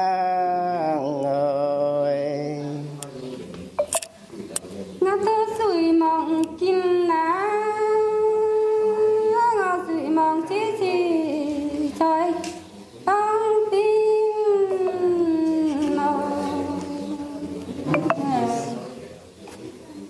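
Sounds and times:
person singing folk song: 0.0 - 3.0.

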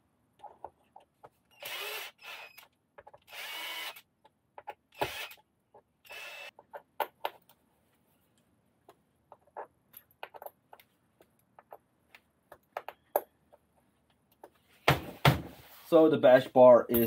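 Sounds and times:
cordless drill driving a screw: 1.5 - 2.7, 3.3 - 4.1, 4.9 - 5.4, 6.0 - 6.5.

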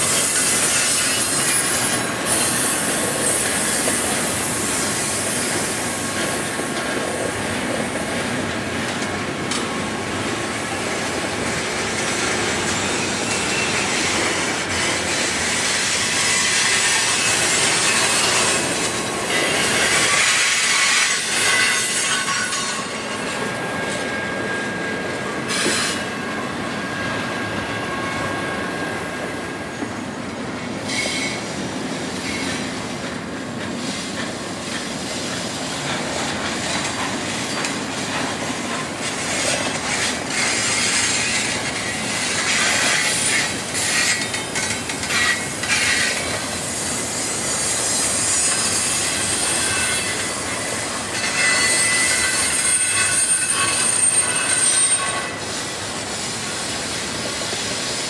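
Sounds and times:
train wheels rumbling on rail: 0.0 - 58.0
faint wheel squeal: 12.7 - 15.2, 19.5 - 31.6, 45.1 - 56.4.

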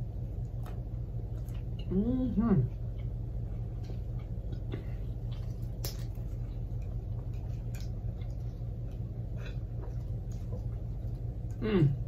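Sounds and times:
steady low hum: 0.0 - 12.0
person chewing sandwich: 2.7 - 12.0.

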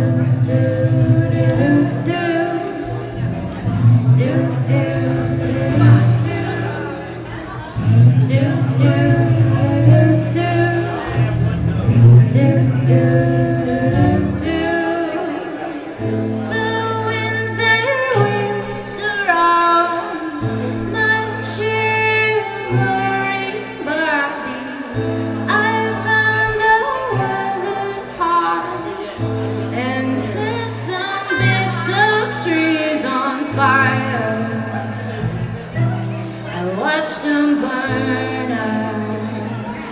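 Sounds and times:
steady bass line: 0.0 - 14.9
person singing: 0.0 - 39.9.

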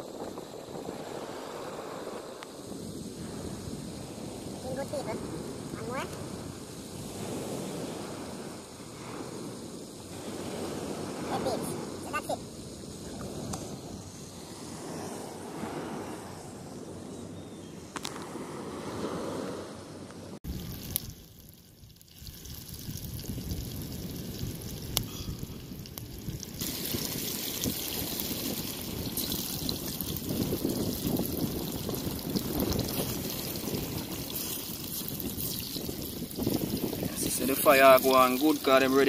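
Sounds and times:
outdoor noise: 0.0 - 37.4
food sizzling in hot oil: 20.4 - 39.0.

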